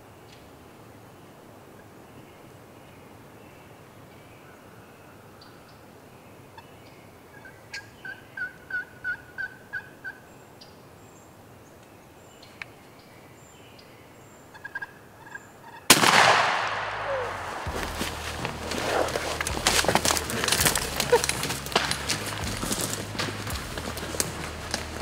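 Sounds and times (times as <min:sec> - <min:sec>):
turkey clucks: 0:07.3 - 0:10.2, 0:14.5 - 0:15.9, 0:17.0 - 0:25.0
wild turkey yelping: 0:07.3 - 0:10.3, 0:14.5 - 0:16.0, 0:17.0 - 0:21.9
shotgun blast with echo: 0:15.9 - 0:19.1.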